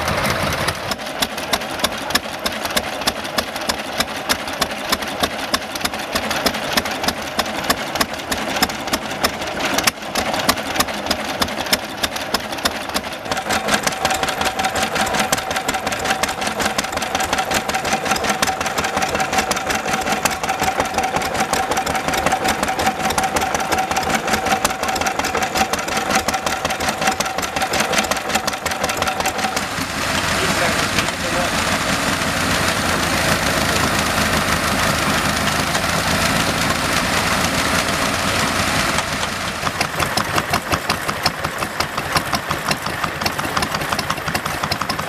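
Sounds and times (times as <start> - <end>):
stationary engine running: 0.0 - 45.0.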